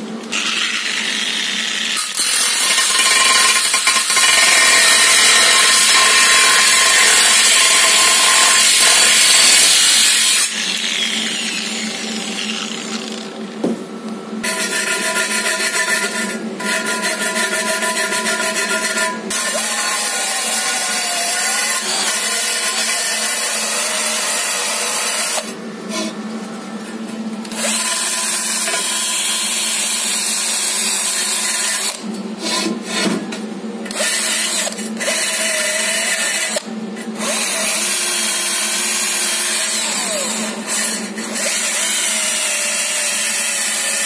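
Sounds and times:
cordless drill whine: 10.4 - 13.3.

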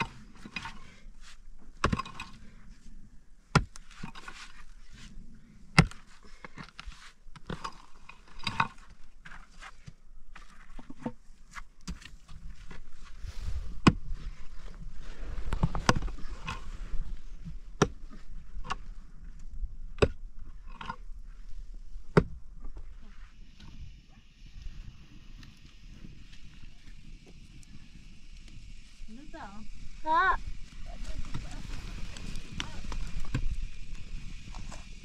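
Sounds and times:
axe chopping wood: 5.8 - 6.0.

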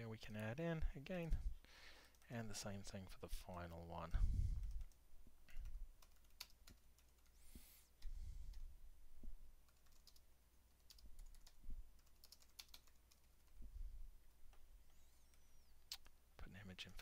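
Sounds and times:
typing on computer keyboard: 4.6 - 7.4, 9.6 - 13.6.

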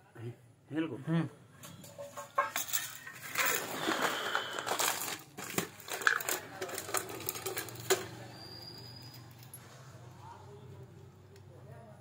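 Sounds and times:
rustling and handling noise: 1.6 - 8.5.

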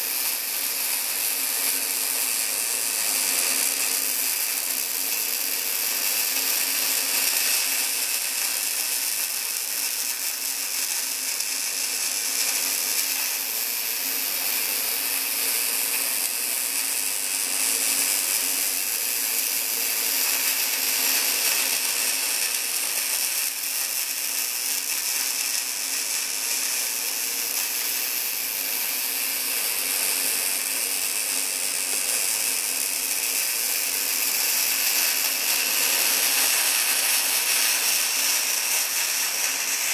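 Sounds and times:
welding arc crackling: 0.0 - 39.9.

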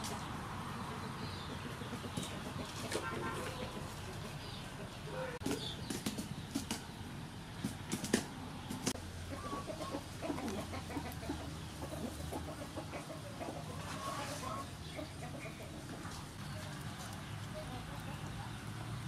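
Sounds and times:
chickens clucking: 0.0 - 19.0.

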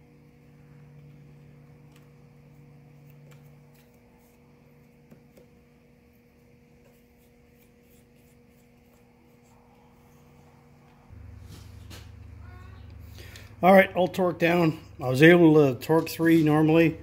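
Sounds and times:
steady low hum: 0.0 - 17.0
loud low hum: 9.1 - 17.0.

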